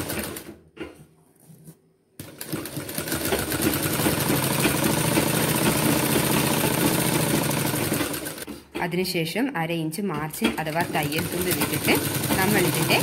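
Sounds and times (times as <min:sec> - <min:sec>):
sewing machine stitching: 0:00.0 - 0:00.6, 0:02.2 - 0:08.6, 0:10.4 - 0:13.0.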